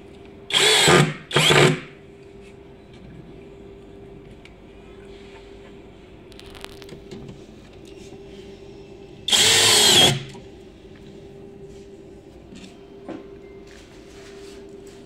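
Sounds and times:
cordless drill driving a screw: 0.5 - 1.8, 9.3 - 10.3.

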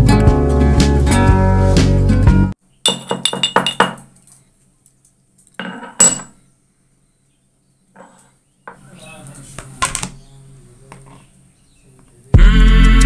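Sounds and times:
pestle pounding in metal mortar: 2.9 - 4.0
metallic clink: 2.9 - 4.5, 5.4 - 6.4.

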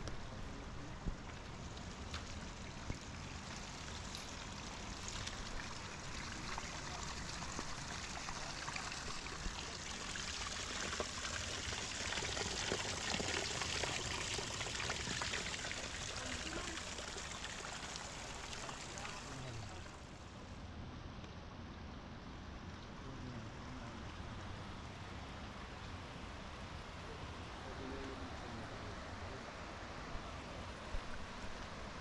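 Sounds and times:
stream water rushing: 1.4 - 20.3.

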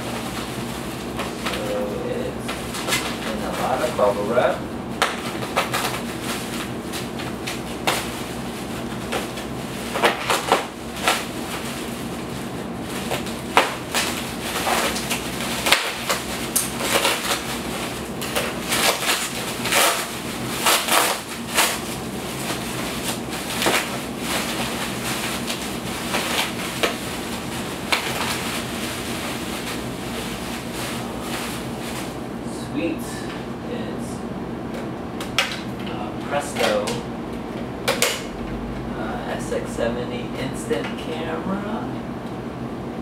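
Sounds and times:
plastic crinkles and crackles: 0.2 - 32.2
scissors cutting bubble wrap: 1.2 - 32.2.

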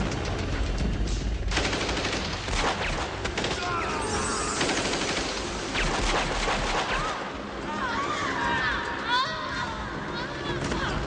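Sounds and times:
rapid gunfire: 1.5 - 7.6.

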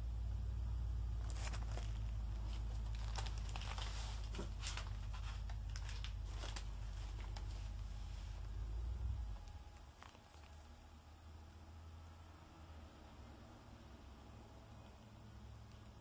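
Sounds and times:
steady low hum: 0.0 - 16.0
paper rustling and crinkling: 1.2 - 8.5, 9.3 - 10.7.

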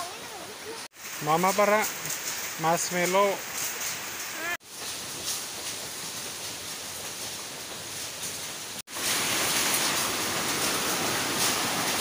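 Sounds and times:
stream water rushing: 0.0 - 4.6, 8.9 - 12.0.

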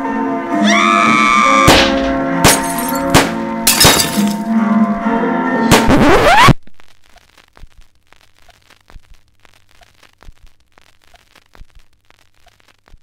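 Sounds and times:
crackling surface noise: 5.8 - 13.0.

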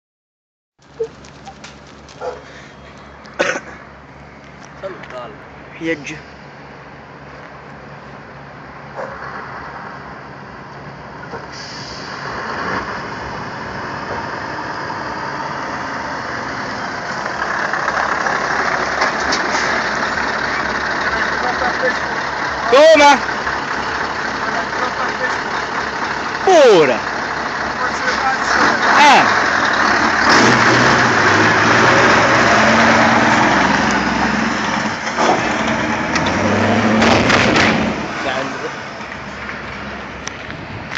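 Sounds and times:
truck diesel engine running: 14.6 - 37.0.

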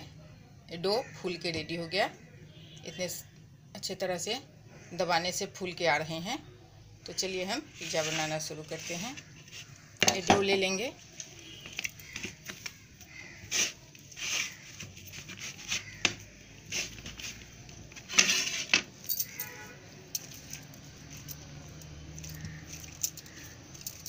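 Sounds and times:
rustling: 7.7 - 10.0, 10.6 - 19.5.

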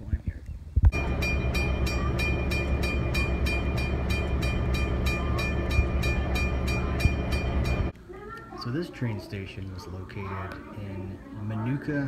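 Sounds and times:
steady low hum: 0.9 - 8.0
crossing signal bell ringing: 1.0 - 7.9.

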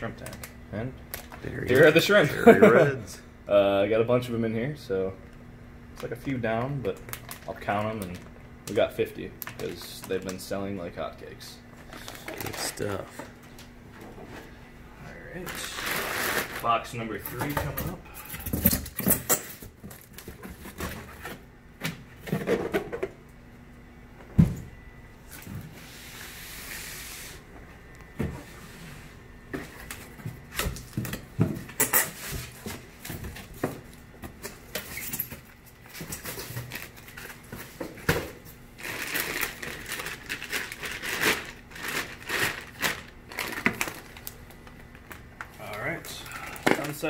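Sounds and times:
plastic bags crinkling: 6.9 - 8.3, 15.4 - 16.8, 38.7 - 47.0.

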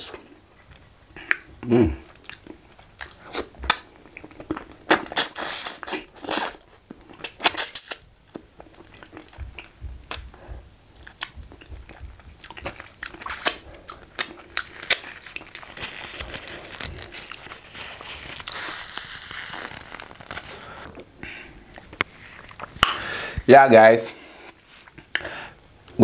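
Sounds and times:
man chewing and lip smacking: 0.1 - 17.6.

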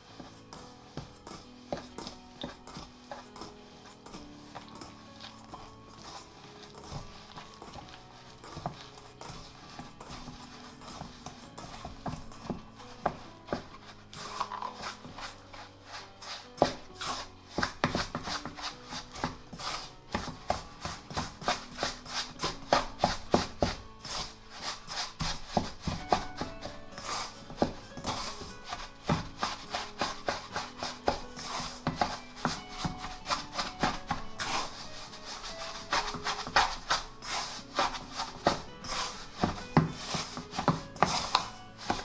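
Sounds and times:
faint background music: 0.0 - 42.0
hands kneading dough: 0.0 - 42.0.

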